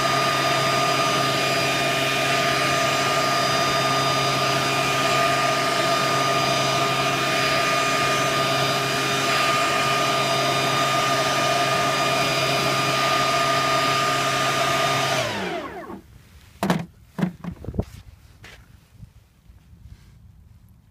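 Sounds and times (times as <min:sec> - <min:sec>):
leaf blower whining: 0:00.0 - 0:17.3
sharp knocks: 0:16.6 - 0:17.6.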